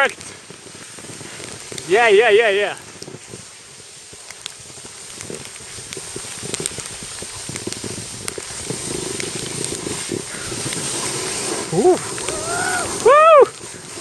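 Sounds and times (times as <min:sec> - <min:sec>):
snow hissing under sliding rider: 0:00.0 - 0:14.0
wind on microphone: 0:04.7 - 0:14.0.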